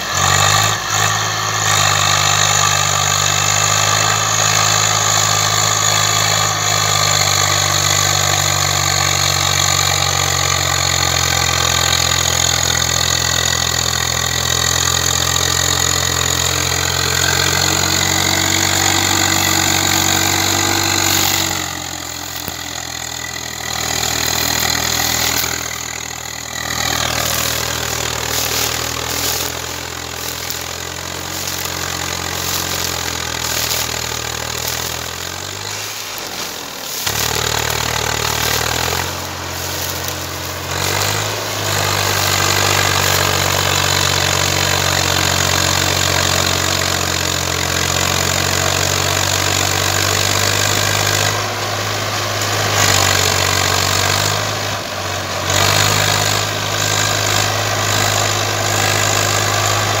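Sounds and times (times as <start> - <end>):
tractor diesel engine labouring: 0.0 - 60.0.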